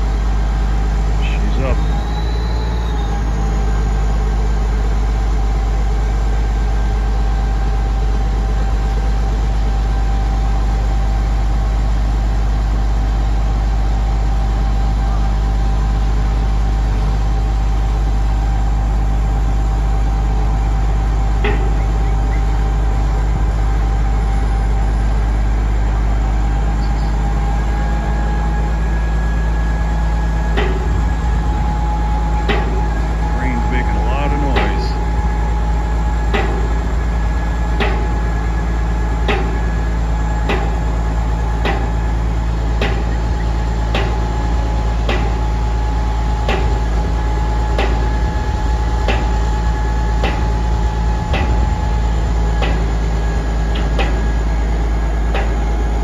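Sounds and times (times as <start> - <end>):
crane diesel engine whining: 0.0 - 56.0.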